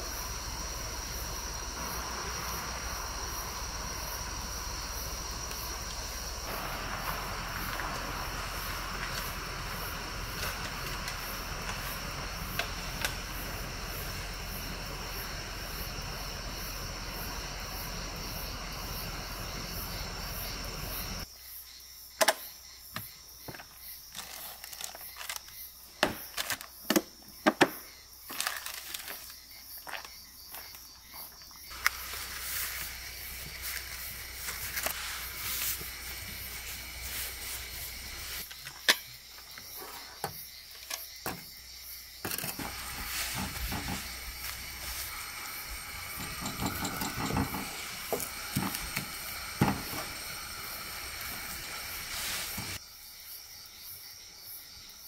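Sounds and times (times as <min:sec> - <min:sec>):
steady night-time hiss: 0:00.0 - 0:55.0
cooler clicks and knocks: 0:46.2 - 0:50.1
paper towel rustling: 0:51.8 - 0:52.8.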